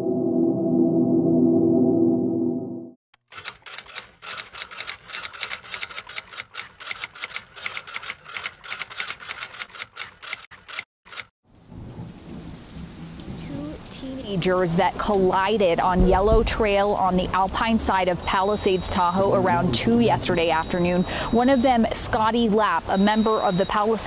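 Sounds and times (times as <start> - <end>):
typewriter keystroke clicks: 3.2 - 11.3.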